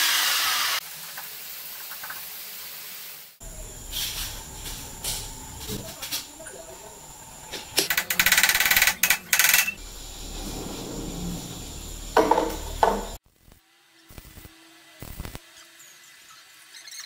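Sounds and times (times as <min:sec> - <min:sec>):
low hum: 0:03.4 - 0:13.2.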